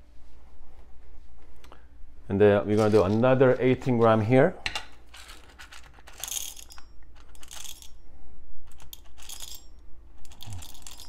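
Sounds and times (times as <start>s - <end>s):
coffee beans rattling into metal cup: 5.0s - 8.0s, 8.7s - 11.0s.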